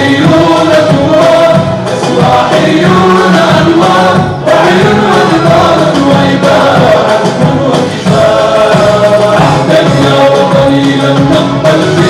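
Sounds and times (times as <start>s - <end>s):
male vocal group chanting in unison: 0.0s - 12.0s.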